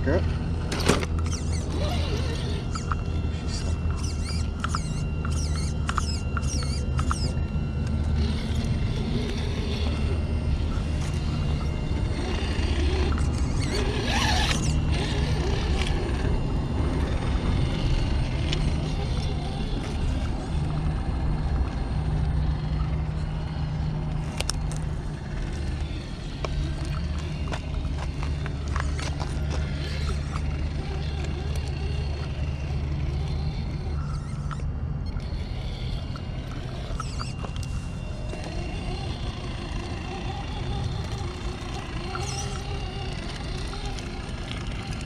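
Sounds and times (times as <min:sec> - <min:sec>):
electric motor and gears drone: 0:00.0 - 0:45.0
short squeaks and clicks: 0:00.7 - 0:16.4, 0:24.2 - 0:45.0.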